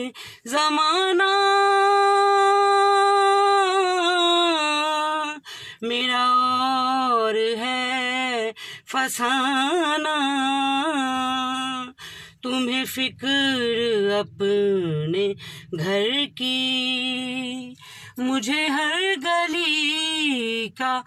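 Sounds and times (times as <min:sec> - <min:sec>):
woman singing unaccompanied: 0:00.0 - 0:21.0
singer breathing: 0:00.1 - 0:00.5, 0:05.4 - 0:05.9, 0:08.5 - 0:08.9, 0:11.9 - 0:12.5, 0:15.3 - 0:15.8, 0:17.7 - 0:18.2.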